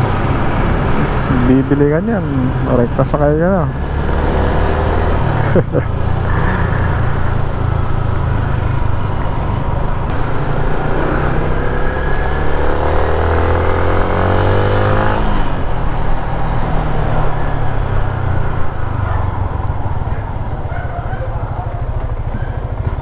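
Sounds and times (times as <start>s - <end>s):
vehicle accelerating: 0.0s - 20.7s
road and wind noise: 0.0s - 23.0s
motorcycle engine running: 6.0s - 15.8s.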